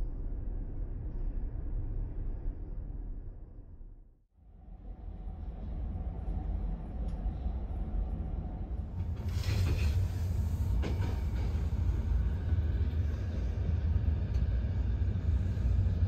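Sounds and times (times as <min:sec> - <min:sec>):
train running gear rumbling on rails: 0:04.9 - 0:16.0.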